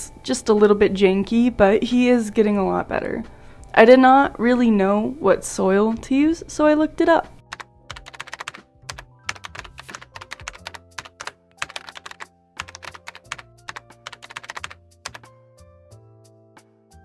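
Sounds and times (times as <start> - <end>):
background music: 0.0 - 17.0
keyboard typing: 7.5 - 15.3.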